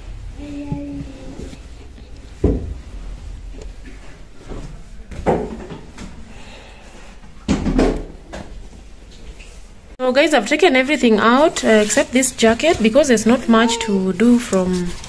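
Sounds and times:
clothes and hangers rustling: 0.0s - 6.3s, 8.6s - 15.0s.

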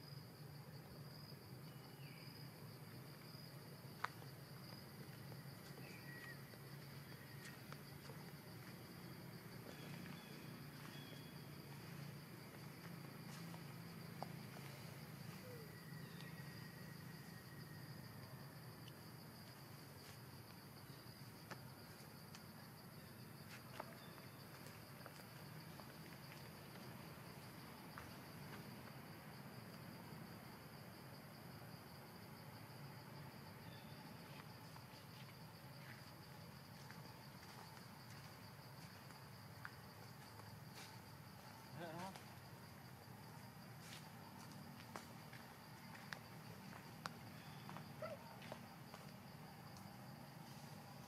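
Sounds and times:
insects trilling: 0.0s - 51.0s.

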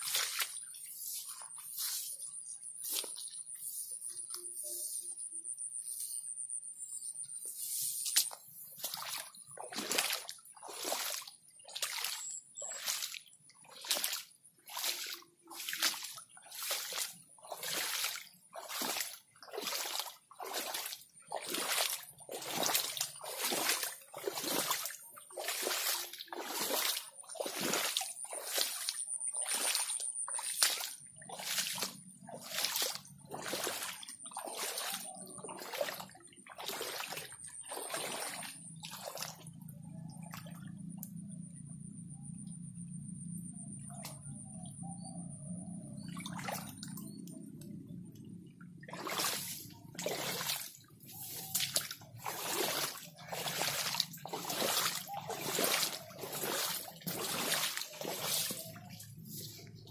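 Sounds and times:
footsteps splashing through water: 0.0s - 4.4s, 7.3s - 41.1s, 45.7s - 59.9s
faint high-pitched tone: 3.6s - 7.6s.

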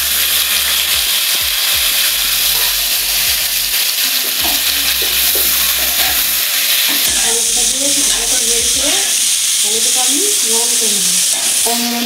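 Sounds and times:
vegetables sizzling in oil: 0.0s - 12.0s
spatula scraping pan: 0.4s - 9.8s.

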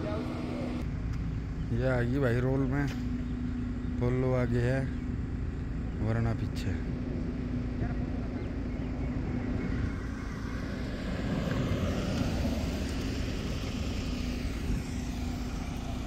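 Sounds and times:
cars accelerating past: 8.5s - 16.0s.

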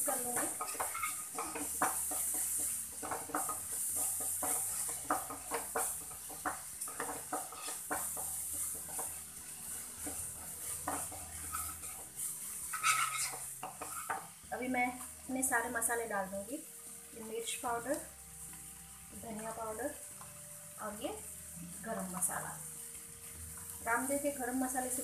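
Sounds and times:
wooden spatula scraping a pan: 0.0s - 15.2s
frying sizzle: 0.0s - 25.0s.

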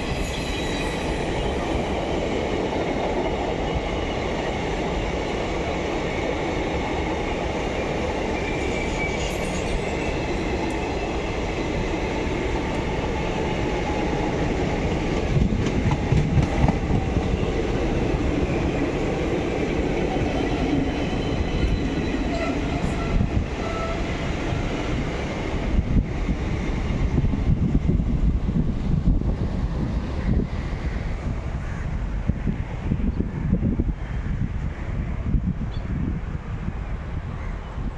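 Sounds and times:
train wheels rumbling on rails: 0.0s - 37.9s.

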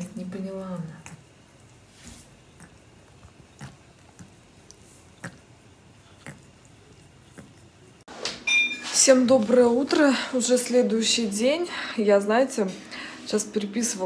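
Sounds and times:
cat licking paw: 0.9s - 8.1s.

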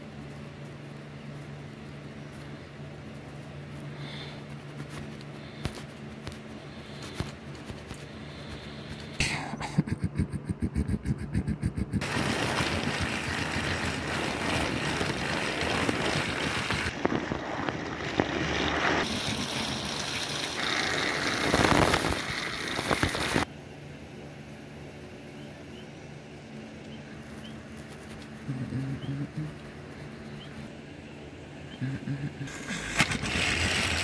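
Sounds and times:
quick rhythmic clicking: 10.0s - 12.1s
toy train motor running on track: 11.7s - 17.0s, 32.6s - 34.0s.

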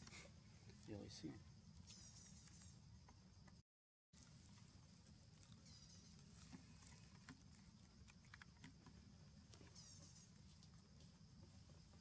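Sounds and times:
faint high chirping: 1.8s - 3.5s, 5.4s - 7.1s, 9.6s - 10.5s.

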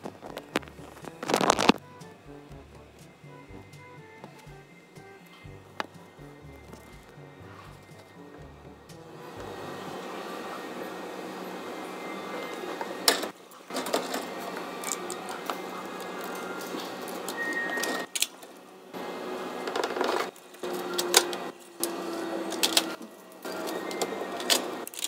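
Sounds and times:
receipt printer running: 6.0s - 18.1s, 19.0s - 25.0s.

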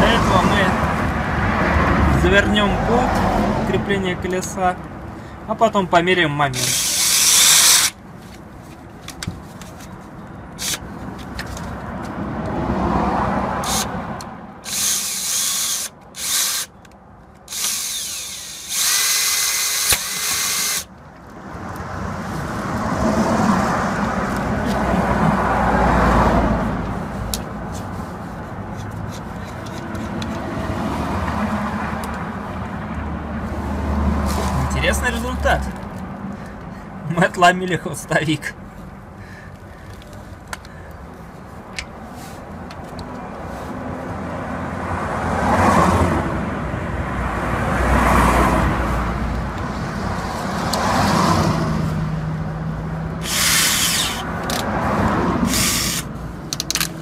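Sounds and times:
cordless drill running in bursts: 6.6s - 8.0s, 14.6s - 16.7s, 17.5s - 20.9s, 53.2s - 54.2s, 55.5s - 56.0s
screwdriver bit snapping: 6.6s - 8.0s, 14.7s - 20.9s, 53.2s - 54.7s, 55.5s - 57.0s.

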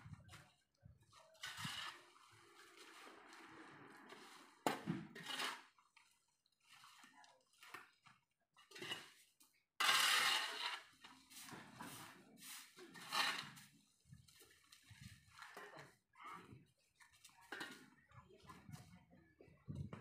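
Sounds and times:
tool scraping on concrete: 1.3s - 7.1s, 8.7s - 13.8s.

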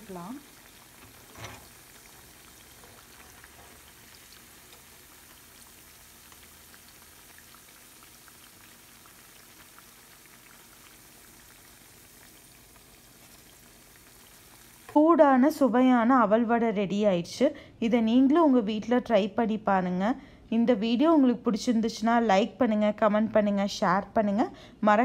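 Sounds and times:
oil sizzling and crackling: 0.0s - 15.0s.

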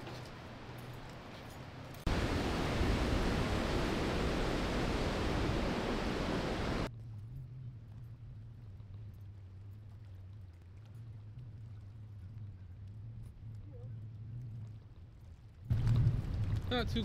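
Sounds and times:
river rushing over dam: 2.1s - 6.9s.

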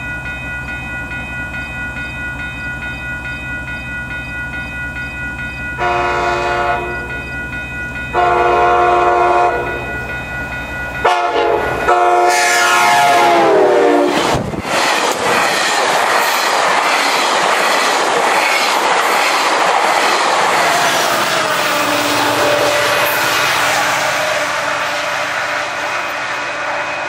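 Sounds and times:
rush of passing train coaches: 0.0s - 27.0s
train horn blasts: 5.8s - 7.1s, 8.1s - 9.9s, 11.0s - 14.2s, 21.3s - 27.0s
wheels clicking over rail joints: 14.2s - 22.2s.

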